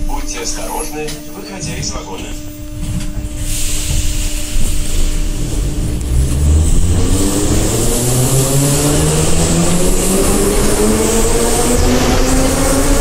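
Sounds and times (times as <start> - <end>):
train rumble: 0.0 - 13.0
traction motor whine rising: 3.9 - 13.0.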